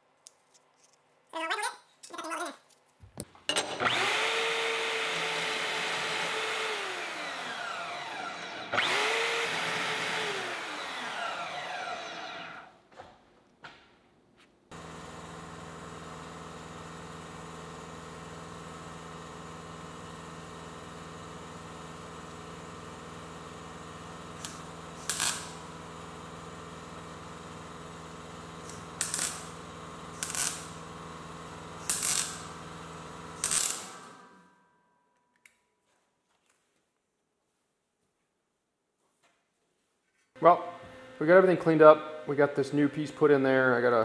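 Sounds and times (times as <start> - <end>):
welder humming: 3.6 - 12.7, 20.8 - 34.5, 40.4 - 44.0
welding arc bursts: 24.3 - 25.7, 28.6 - 34.2.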